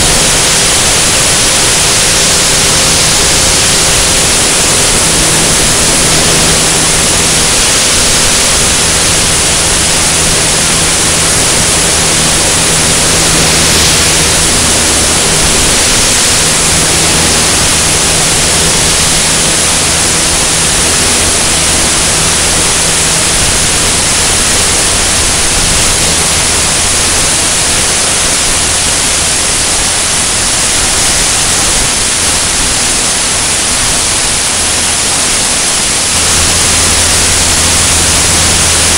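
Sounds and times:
airflow buffeting camera: 0.0s - 29.7s
aircraft engine and propeller drone: 0.0s - 38.9s.

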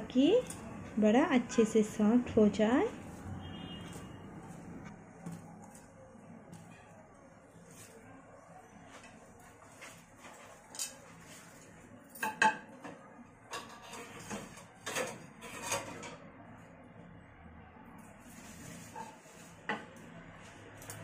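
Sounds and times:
utensils and dishes clinking: 0.0s - 0.9s, 9.8s - 16.3s, 18.8s - 20.0s, 20.7s - 21.0s.

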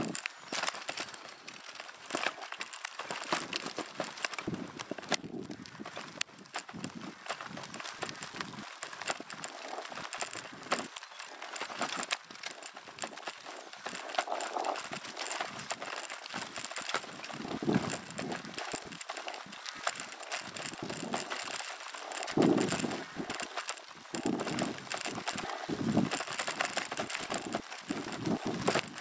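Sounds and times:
bicycle tyres crunching on dirt: 0.0s - 29.0s
bike clicks and rattles: 0.0s - 29.0s
wind rumble on microphone: 4.3s - 8.7s, 17.2s - 21.5s, 22.1s - 29.0s.

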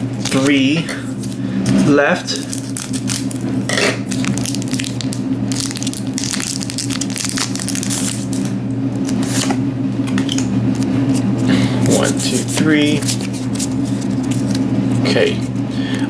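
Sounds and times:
foil wrapper crinkling: 2.3s - 9.5s, 10.8s - 15.1s.

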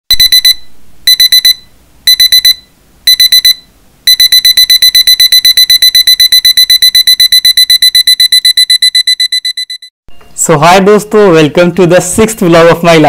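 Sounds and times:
digital alarm clock beeping: 0.1s - 9.9s.

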